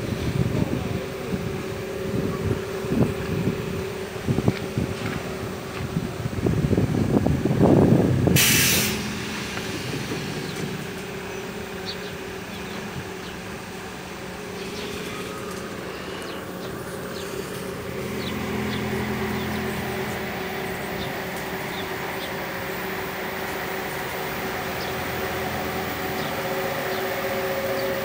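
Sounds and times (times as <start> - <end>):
loud low rumble: 0.0 - 28.0
compressed air hiss: 8.3 - 11.5.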